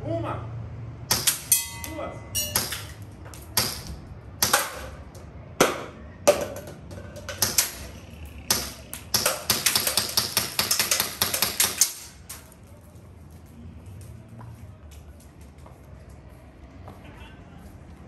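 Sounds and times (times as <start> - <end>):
airsoft pistol shots: 1.1 - 1.7, 2.6 - 5.0, 7.3 - 7.9, 8.5 - 12.1.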